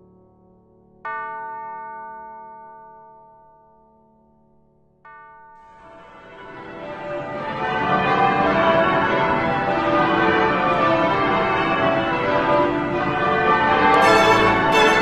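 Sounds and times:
church bells pealing: 13.9 - 15.0.

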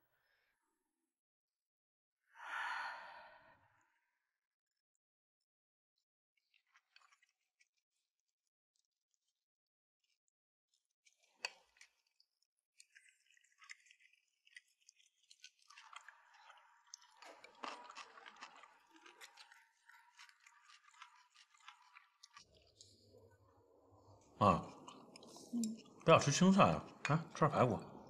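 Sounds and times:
chewing: 6.4 - 8.1, 10.0 - 23.5, 24.2 - 27.1.

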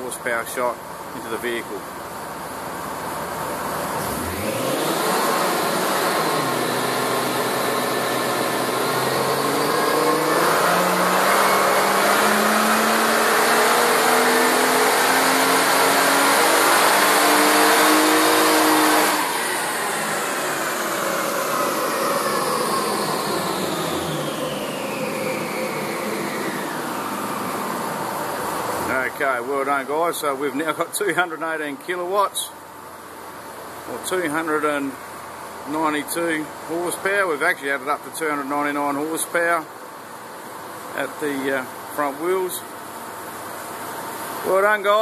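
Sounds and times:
car engine revving at full throttle: 2.9 - 29.2
dyno rollers slowing: 3.9 - 32.4.

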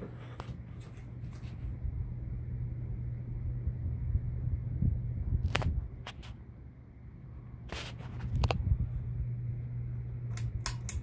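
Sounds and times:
airflow buffeting microphone: 0.0 - 11.0
ceiling fan humming: 0.0 - 11.0
sharp click: 10.3 - 11.0.

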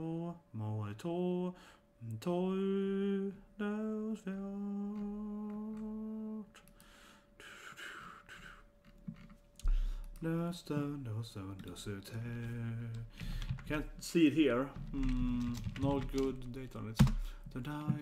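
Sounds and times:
man humming: 14.9 - 18.0.

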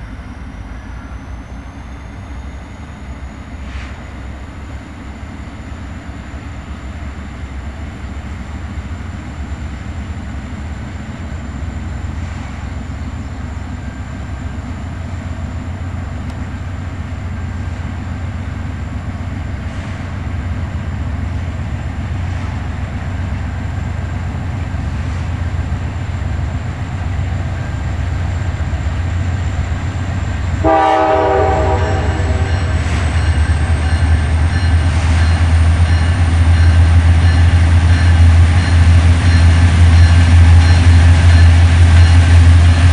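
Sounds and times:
diesel locomotives rumbling: 0.0 - 42.9
locomotive horn blast: 30.6 - 33.0.

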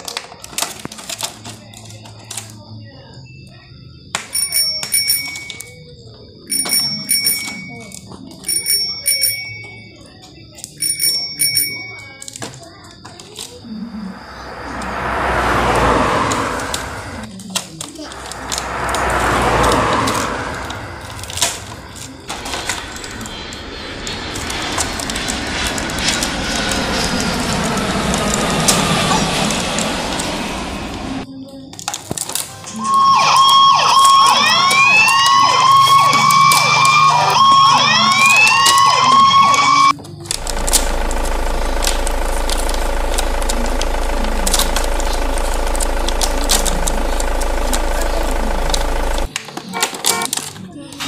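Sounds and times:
toy siren effect: 6.5 - 9.8, 13.7 - 17.3, 18.1 - 31.2, 32.6 - 41.2, 46.0 - 50.4
toy engine idling hum: 6.5 - 51.0.

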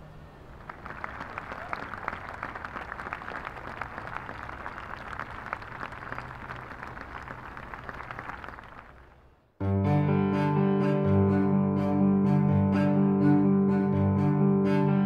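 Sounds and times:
applause: 0.5 - 9.3.

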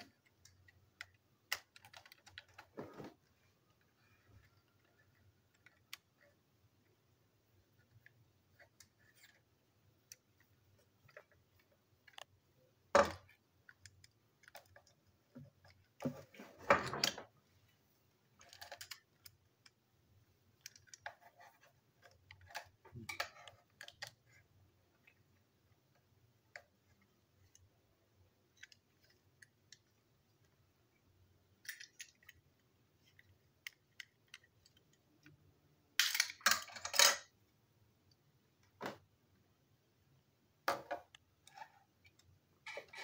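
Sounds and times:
screwdriver clicking and scraping plastic: 0.0 - 2.8, 20.6 - 25.2.

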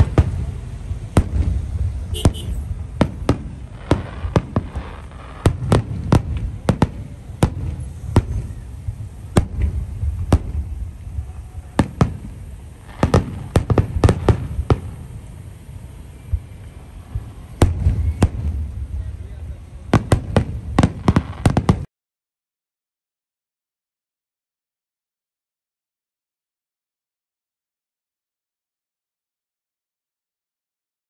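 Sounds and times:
steady low rumble: 0.0 - 20.0
fireworks bursting in sharp bangs: 0.0 - 21.9.

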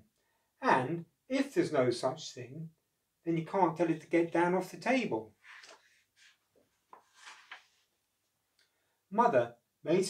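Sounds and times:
paper page rustle: 5.4 - 7.9.

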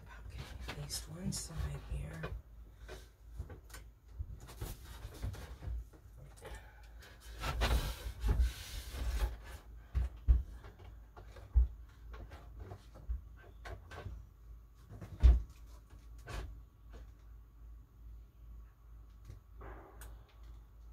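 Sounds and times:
wooden board scraping: 7.2 - 9.7.

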